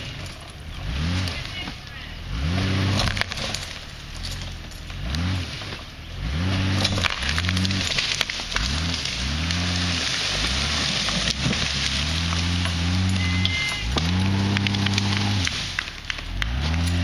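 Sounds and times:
car engine revving: 0.0s - 17.0s
wood crackling and snapping: 0.0s - 17.0s.

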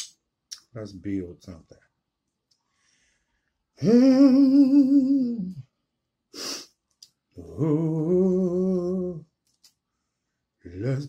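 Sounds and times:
man humming with vibrato: 3.8s - 5.6s
hissing breath: 6.3s - 6.8s.

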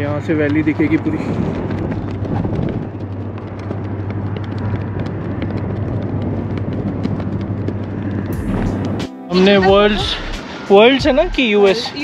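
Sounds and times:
footsteps on wooden planks: 0.0s - 9.0s
low rumble: 0.9s - 11.4s.

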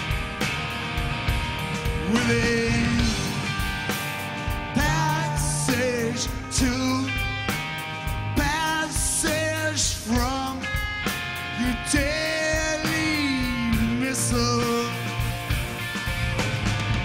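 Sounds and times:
bass guitar: 0.0s - 17.0s
drums: 0.0s - 17.0s
electric guitar: 0.0s - 17.0s
man singing: 1.9s - 3.5s, 4.7s - 7.5s, 8.3s - 10.9s, 11.5s - 15.3s.

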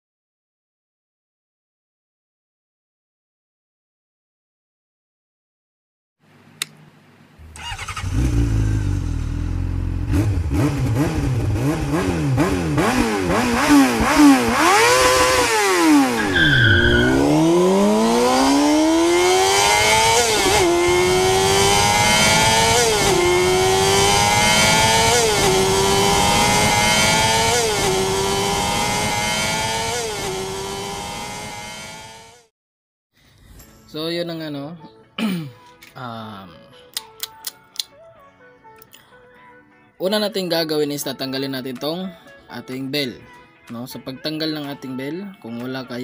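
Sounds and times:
engine revving: 7.4s - 32.5s.

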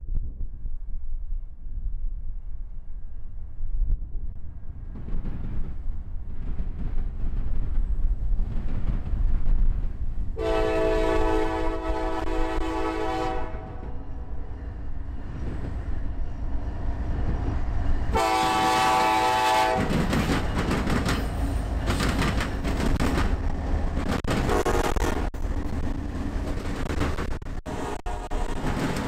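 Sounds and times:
locomotive engines rumbling: 4.3s - 29.0s
wheels clattering on rails: 4.9s - 10.4s, 13.8s - 29.0s
locomotive air horn: 10.4s - 14.0s, 18.1s - 19.9s, 24.4s - 25.3s, 27.7s - 28.8s.

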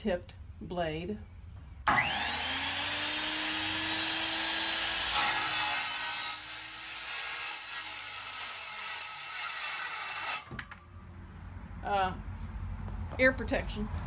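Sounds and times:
circular saw cutting metal: 1.9s - 10.5s.

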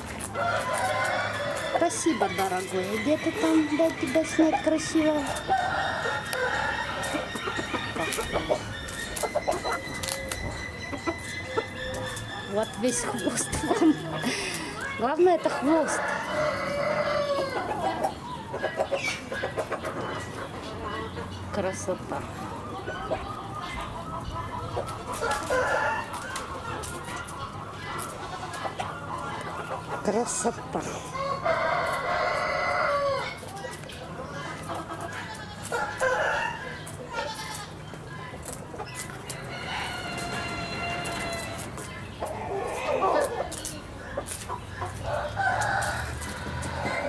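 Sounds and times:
chickens clucking: 0.0s - 47.0s
rooster crowing: 15.7s - 17.7s, 31.2s - 33.4s, 39.5s - 41.6s.

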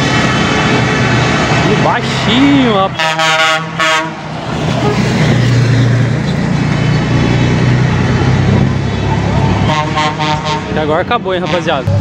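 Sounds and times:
diesel truck engine droning: 0.0s - 12.0s
truck horn: 2.9s - 5.4s, 9.6s - 12.0s.

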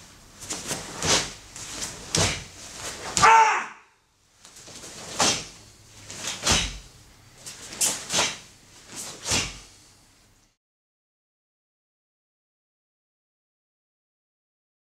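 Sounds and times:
bare feet thudding on mats: 0.4s - 3.4s, 4.4s - 6.9s, 7.7s - 9.7s
fabric sleeves swishing and snapping: 7.5s - 9.7s.

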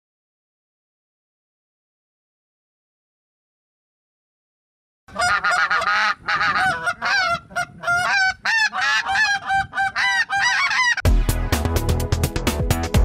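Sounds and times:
goose call honks and clucks: 5.1s - 11.1s
music with heavy beat: 11.0s - 13.0s.

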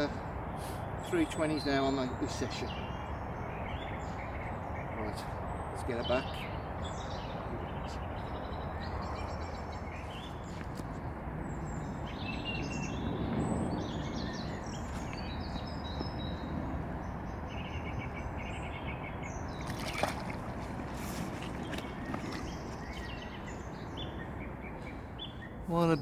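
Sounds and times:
small birds chirping: 0.0s - 26.0s
fish splashing in water: 19.5s - 23.1s.

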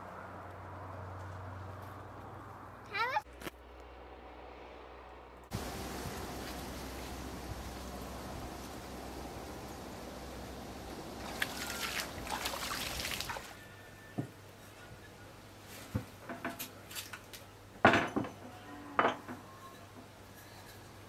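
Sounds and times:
water splashing from bowl: 5.5s - 13.6s.

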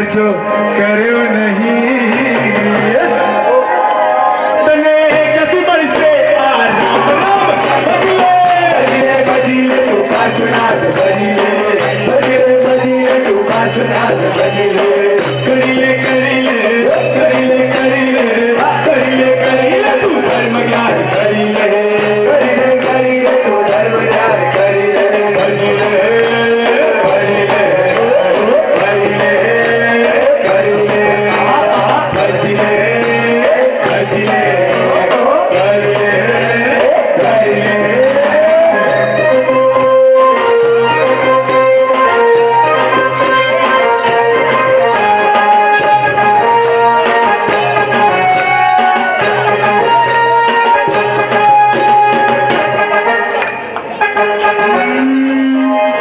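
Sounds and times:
jingling hand percussion: 0.5s - 56.0s
group singing: 0.7s - 40.0s
repeating bass pattern: 1.2s - 3.4s, 5.0s - 41.7s
drum beat: 1.3s - 4.0s, 4.7s - 54.0s.

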